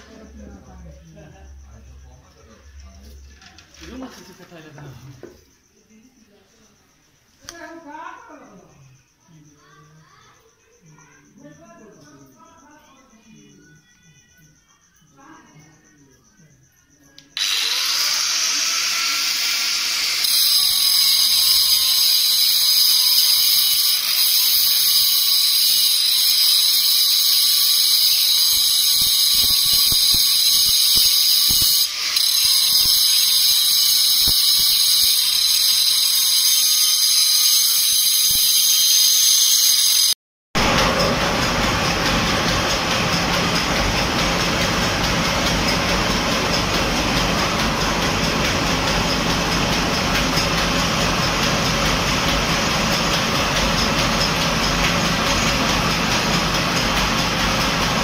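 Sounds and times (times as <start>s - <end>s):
mill machine high-pitched squeal: 17.2s - 58.0s
rushing machine noise: 40.0s - 58.0s.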